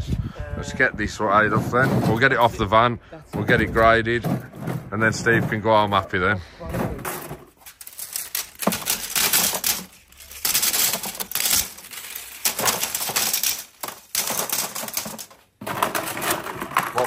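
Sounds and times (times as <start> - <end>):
circuit boards clattering: 6.8 - 17.0.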